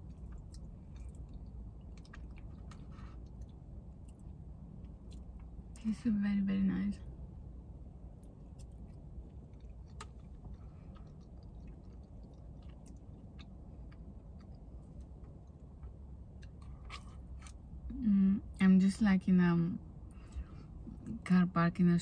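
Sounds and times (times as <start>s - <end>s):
person chewing: 0.0s - 5.6s, 8.2s - 17.8s
low rumble inside car: 0.0s - 22.0s.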